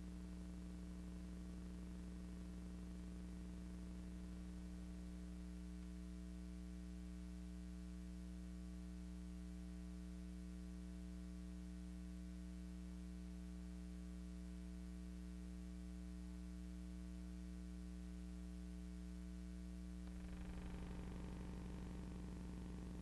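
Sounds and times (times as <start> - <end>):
electrical hum: 18.8 - 23.0.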